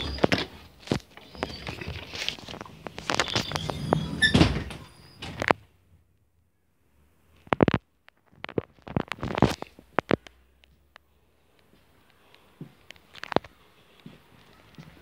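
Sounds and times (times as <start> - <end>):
rustling: 0.0 - 4.8.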